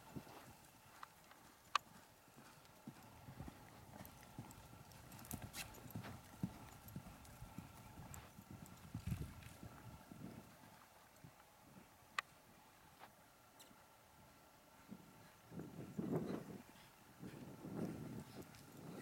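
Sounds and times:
hooves thudding on sand: 0.0 - 11.9, 14.7 - 19.0.

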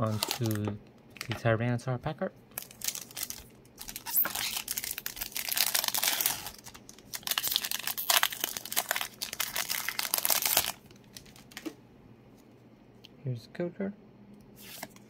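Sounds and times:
foil wrapper crinkling: 0.0 - 1.4, 2.5 - 11.7.

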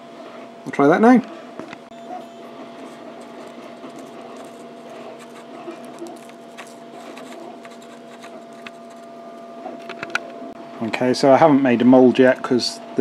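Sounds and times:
three d printer humming: 1.8 - 10.8
brush dabbing scratches and ticks: 2.2 - 9.1.

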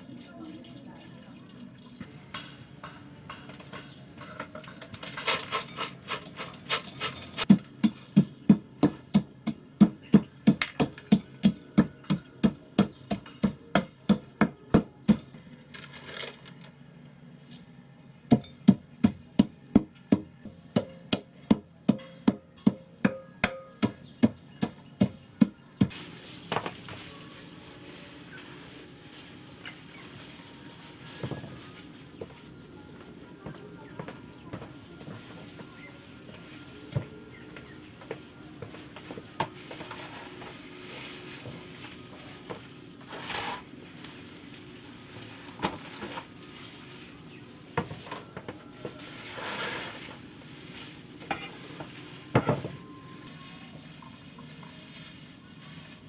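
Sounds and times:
pestle pounding in a mortar: 7.4 - 15.3, 18.3 - 25.9.

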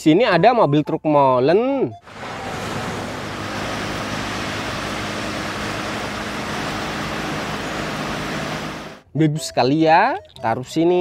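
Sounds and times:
road and wind rushing: 2.0 - 9.0
truck diesel engine: 2.0 - 9.0.

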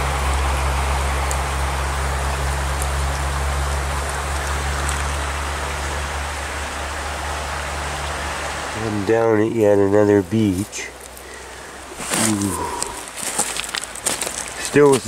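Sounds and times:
creek water running over stones: 0.0 - 15.0.

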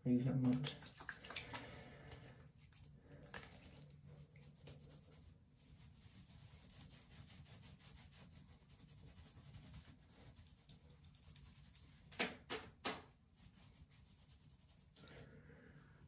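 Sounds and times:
hands rubbing through hair: 3.4 - 15.2.

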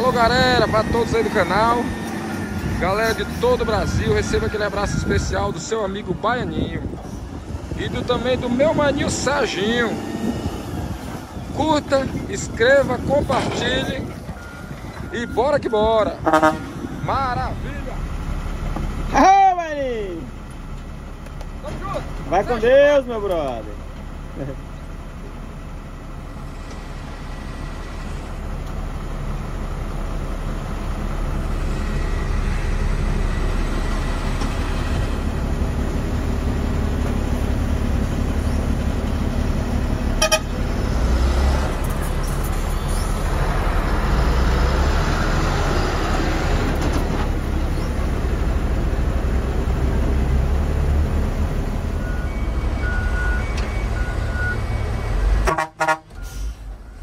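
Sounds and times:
diesel truck engine pulling away: 0.0 - 57.0
truck horn toot: 16.2 - 17.0, 40.2 - 40.7, 55.2 - 56.6.

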